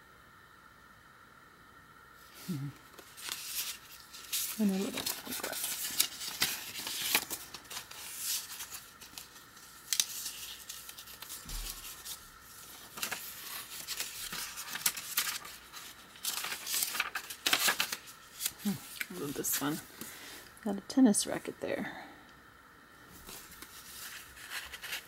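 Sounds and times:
paper pages rustling: 2.9 - 20.1, 23.2 - 25.0.

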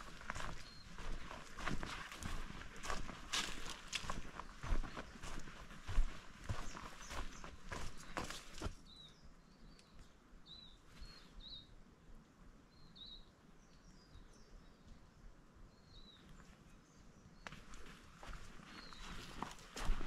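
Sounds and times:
footsteps: 0.0 - 8.8, 17.5 - 20.0.

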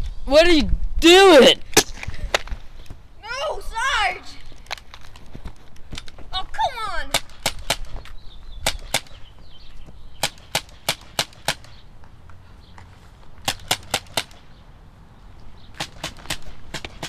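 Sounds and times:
toy gun firing: 13.5 - 14.4.

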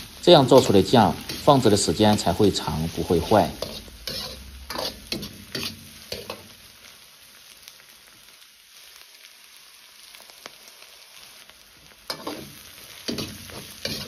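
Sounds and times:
beans sizzling in oil: 0.0 - 14.0
metal ladle scraping wok: 0.5 - 1.6, 2.9 - 6.5, 12.1 - 14.0.

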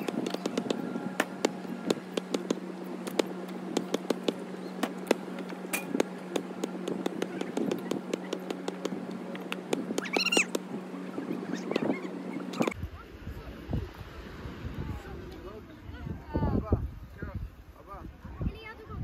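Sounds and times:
sharp knocks and taps: 0.0 - 10.7
steady low hum: 0.0 - 18.3.

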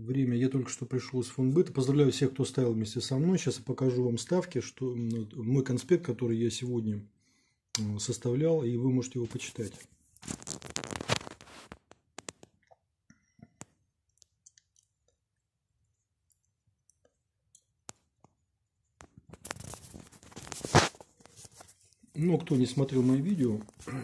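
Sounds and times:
camera handling rubbing: 19.3 - 22.0.

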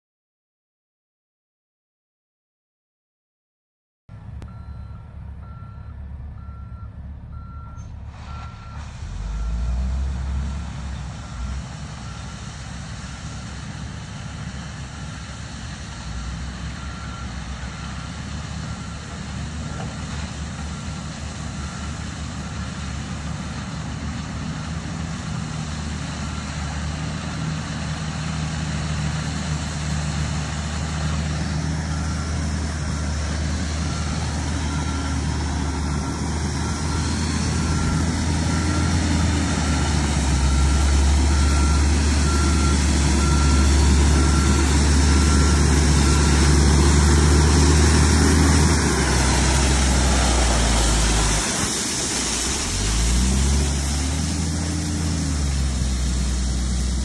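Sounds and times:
heavy engines rumbling: 4.1 - 57.0
truck backup alarm beeping: 4.4 - 12.6, 16.1 - 23.0, 26.1 - 27.0, 30.8 - 55.6.

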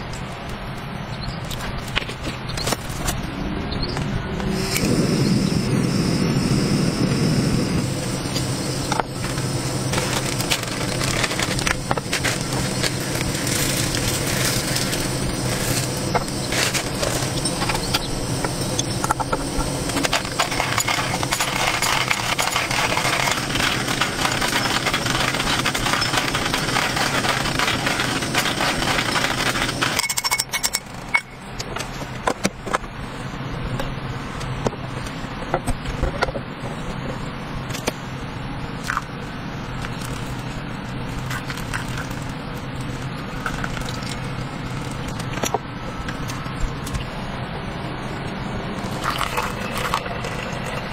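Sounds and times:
steady low hum: 0.0 - 50.9
coffee grinder crushing beans: 8.4 - 30.8, 48.8 - 50.9.

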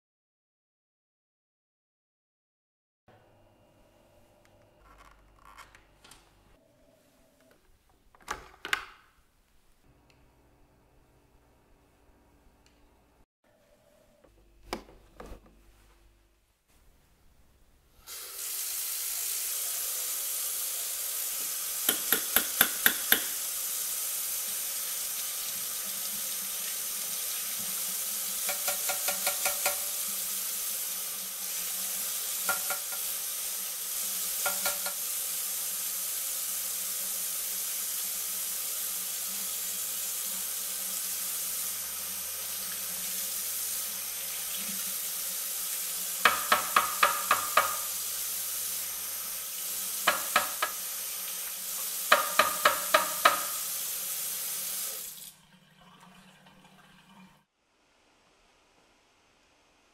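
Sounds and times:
tap running into sink: 21.4 - 23.4, 28.4 - 30.0, 32.4 - 33.1, 34.4 - 35.0, 46.2 - 47.9, 50.0 - 50.9, 52.1 - 53.6
plastic filter knocking on sink: 32.5 - 33.0, 34.4 - 35.0, 46.3 - 47.8, 50.1 - 50.8, 52.1 - 53.6.

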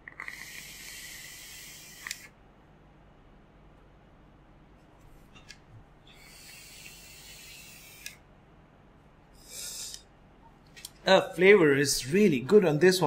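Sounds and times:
airy hiss of vape draw: 0.2 - 2.3, 6.1 - 8.2.

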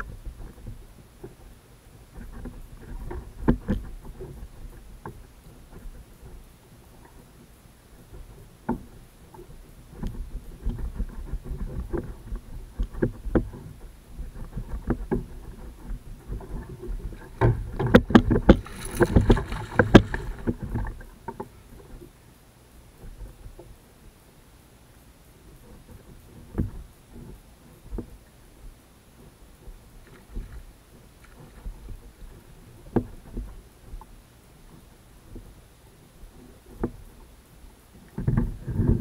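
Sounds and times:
water sloshing: 14.3 - 22.1
knocks against plastic kayak hull: 17.4 - 21.4
fish splashing: 18.2 - 21.0.

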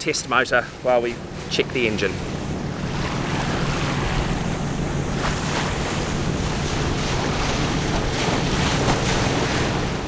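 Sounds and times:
boat engine running: 0.0 - 10.0
water rushing past hull: 0.0 - 10.0
wind on microphone: 2.2 - 10.0.

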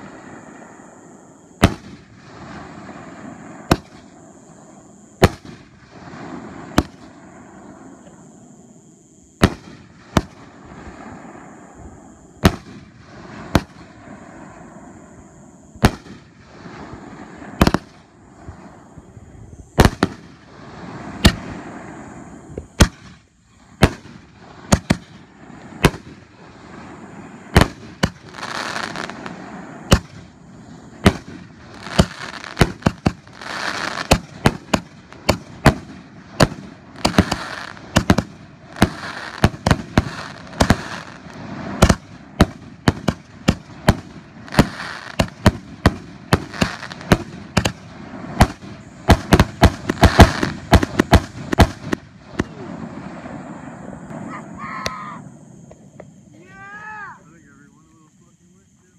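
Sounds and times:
fireworks bangs: 0.0 - 57.9
fireworks crackling hiss: 0.0 - 58.9.

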